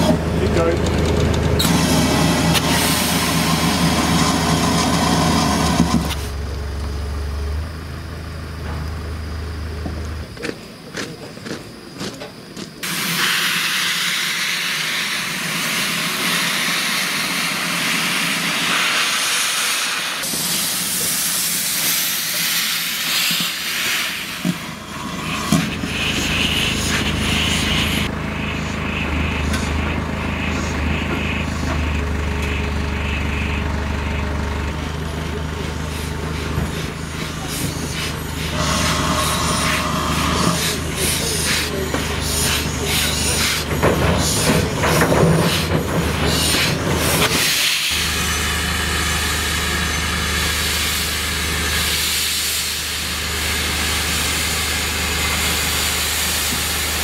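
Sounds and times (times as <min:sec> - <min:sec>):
steam hissing from locomotive: 0:01.6 - 0:06.3, 0:12.8 - 0:28.8, 0:35.6 - 0:57.0.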